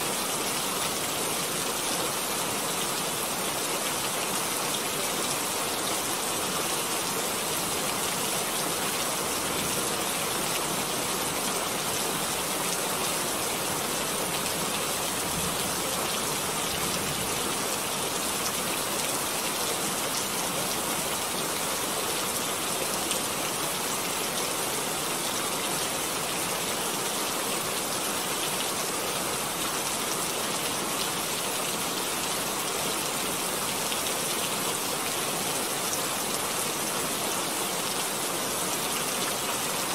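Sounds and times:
steady hiss like heavy rain: 0.0 - 39.9.

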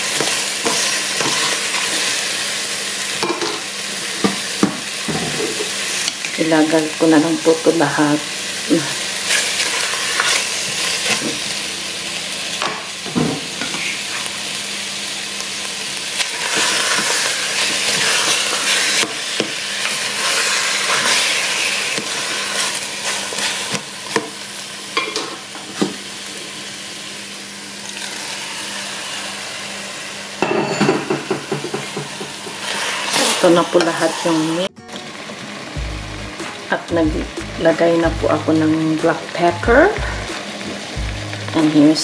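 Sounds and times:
chicken and onions sizzling in pan: 0.0 - 42.0
spatula scraping pan: 0.2 - 2.0.

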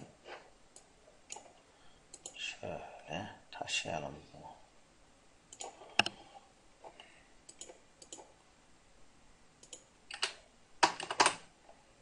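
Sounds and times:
computer mouse clicking: 2.1 - 2.4, 5.5 - 6.2, 7.5 - 8.3, 9.6 - 11.4.

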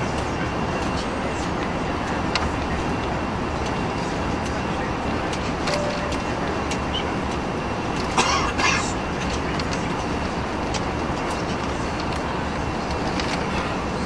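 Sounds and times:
airplane cabin airflow and engine: 0.0 - 14.0.

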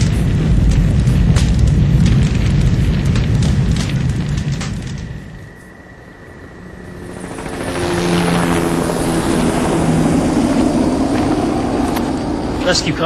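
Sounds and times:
vehicle engine approaching: 5.6 - 13.0.

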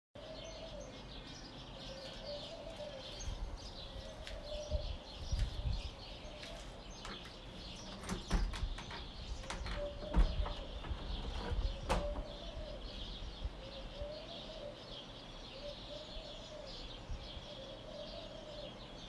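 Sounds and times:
small birds chirping: 0.2 - 19.0
wind rumble on microphone: 3.1 - 14.3, 16.9 - 17.6.

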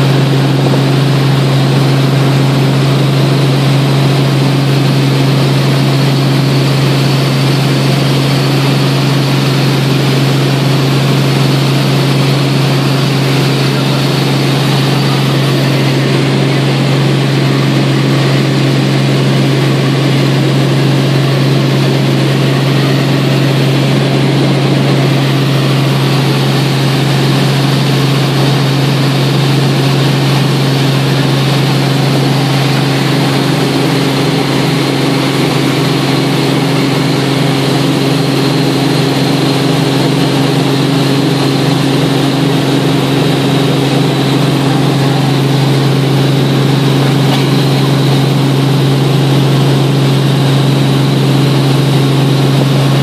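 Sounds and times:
helicopter engine and rotor drone: 0.0 - 53.0.

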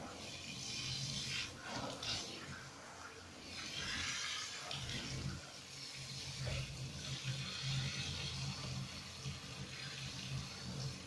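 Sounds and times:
shower head spraying water: 3.4 - 11.0.

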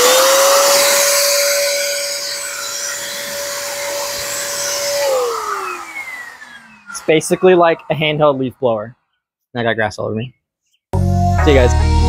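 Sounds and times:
electric blower whining: 0.0 - 8.5.

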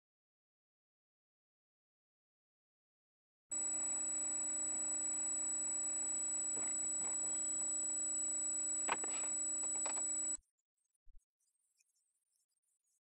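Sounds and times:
electrical hum and hiss: 3.6 - 10.4.

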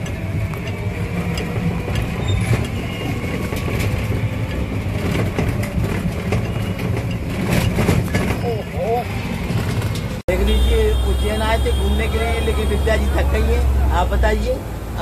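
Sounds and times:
knocks and rattles: 0.0 - 8.8, 9.4 - 10.2
auto-rickshaw engine running: 0.0 - 15.0.

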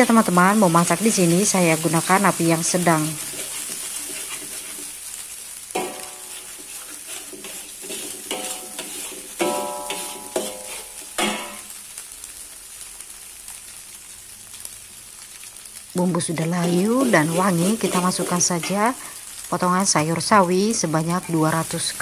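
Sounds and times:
egg sizzling in hot oil: 0.0 - 22.0
metal spatula scraping a wok: 2.9 - 11.7
spatula knocking wok metallic ring: 5.8 - 6.7, 7.3 - 11.7.

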